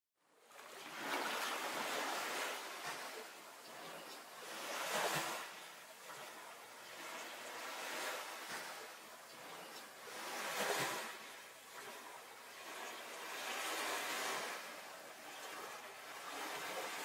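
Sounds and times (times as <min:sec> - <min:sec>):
sea waves washing in: 0:00.4 - 0:17.0.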